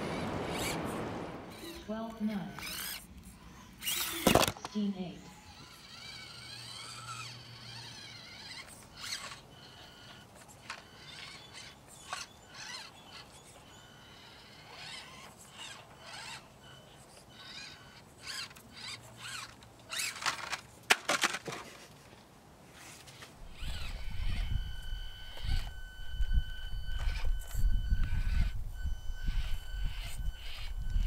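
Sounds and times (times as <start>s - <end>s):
small electric motors whining: 0.0s - 21.5s, 22.8s - 31.0s
toy cars clicking on wood: 3.8s - 4.8s, 5.6s - 22.0s.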